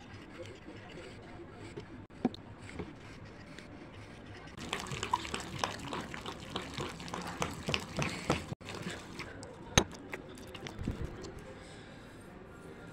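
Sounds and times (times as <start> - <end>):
slime squelching: 4.6 - 11.5.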